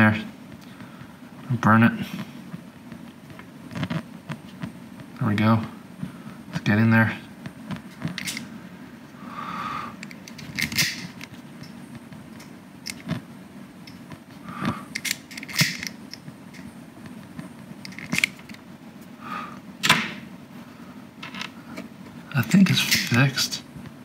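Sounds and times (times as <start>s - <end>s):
cable handling: 7.7s - 8.5s, 10.0s - 13.2s, 13.8s - 18.7s.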